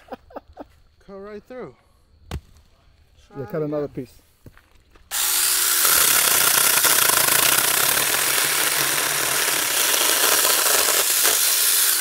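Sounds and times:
mini chainsaw cutting a log: 5.1 - 12.0.

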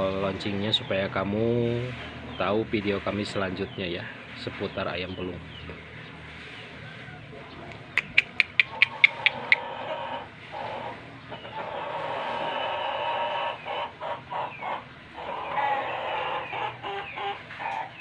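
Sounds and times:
sharp clicks: 7.7 - 9.6.

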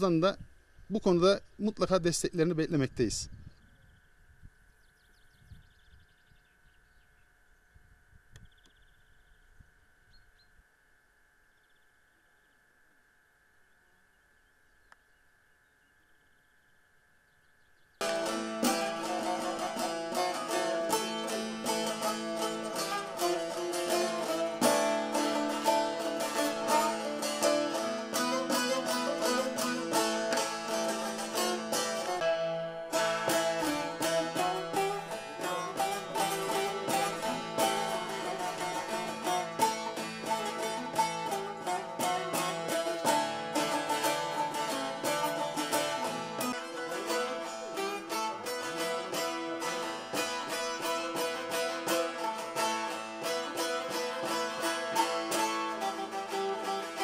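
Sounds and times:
plucked long-necked lute melody: 18.0 - 57.0.

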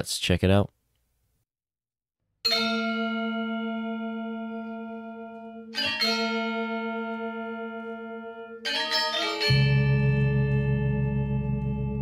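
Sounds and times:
bronze gamelan strike ringing: 2.5 - 12.0.

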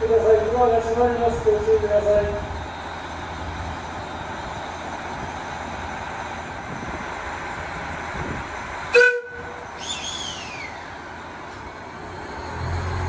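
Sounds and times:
train rumble: 0.0 - 13.0
train horn blast: 8.9 - 9.6
falling squeal: 9.8 - 11.0.

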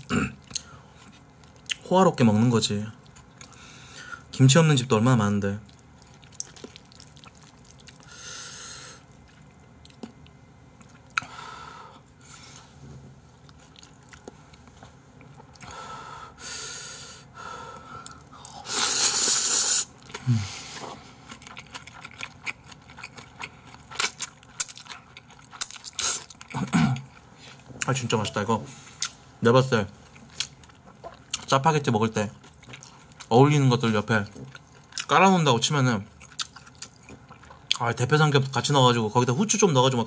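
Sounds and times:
wet chewing and crunching: 5.6 - 8.2, 13.4 - 15.7, 20.9 - 28.0, 30.1 - 35.4, 36.2 - 37.8
man slurping noodles: 18.4 - 21.0.

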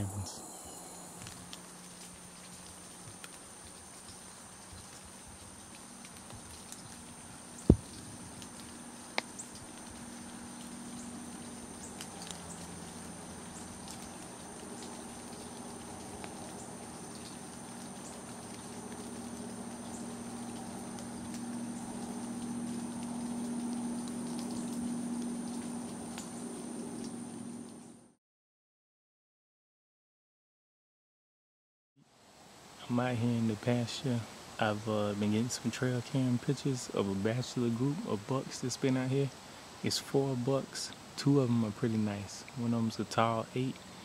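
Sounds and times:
insects droning: 0.0 - 28.1, 32.2 - 44.0
low hum: 0.0 - 28.2.

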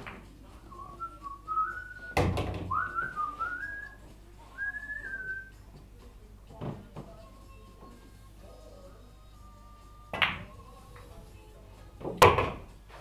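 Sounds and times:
person whistling a tune: 0.7 - 4.0, 4.6 - 5.5.

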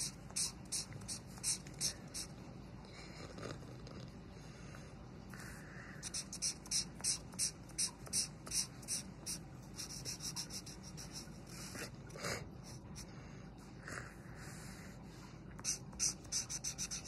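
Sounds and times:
marker rubbing on paper: 0.0 - 2.3, 6.0 - 11.4, 15.6 - 17.0.

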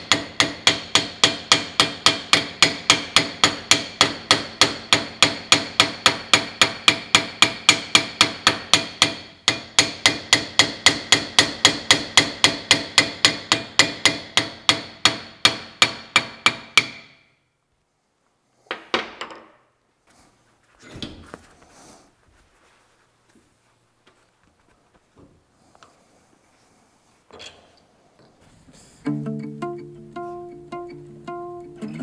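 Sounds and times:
hammer striking metal: 0.0 - 17.3.

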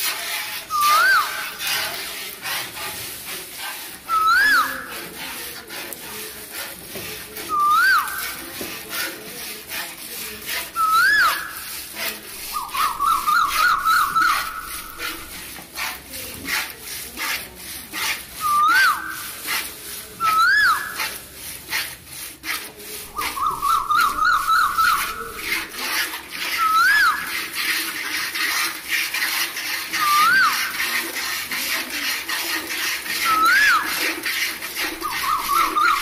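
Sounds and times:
high whistled call: 0.7 - 1.5, 4.1 - 4.9, 7.5 - 8.4, 10.8 - 11.7, 12.5 - 15.3, 18.4 - 19.3, 20.2 - 21.0, 23.2 - 25.5, 26.6 - 27.3, 29.9 - 30.7, 33.2 - 33.9, 35.0 - 36.0.

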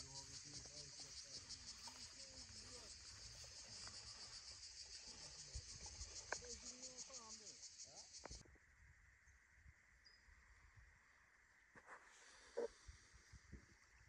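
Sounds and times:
high-pitched insect trilling: 0.0 - 8.4.

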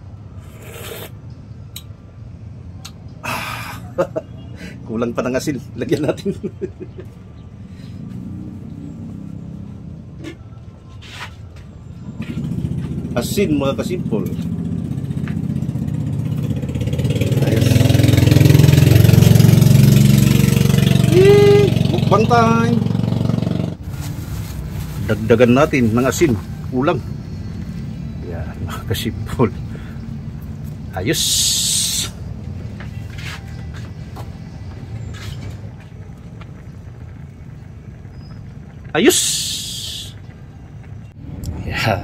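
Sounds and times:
soup simmering rumble: 36.0 - 41.0.

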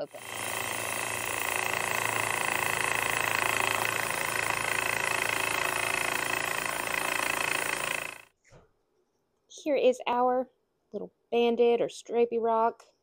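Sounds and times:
saw blade grinding rock: 0.0 - 8.3.

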